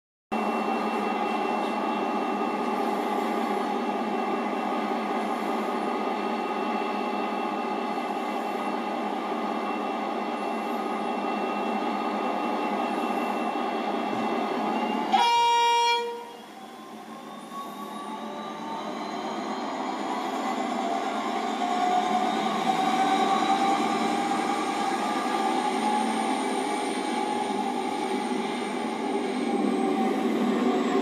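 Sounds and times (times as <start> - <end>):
train horn blast: 15.1 - 16.4.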